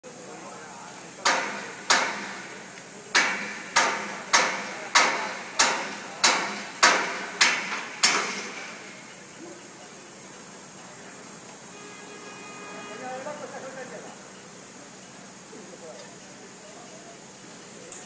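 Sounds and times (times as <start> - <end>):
hammer blows on scaffolding: 1.2 - 8.8.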